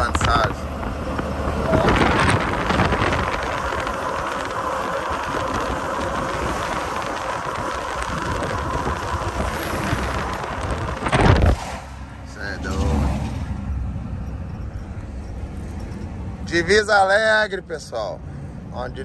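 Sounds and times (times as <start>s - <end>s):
wind rushing: 0.0s - 13.7s
lorry road noise: 0.0s - 19.0s.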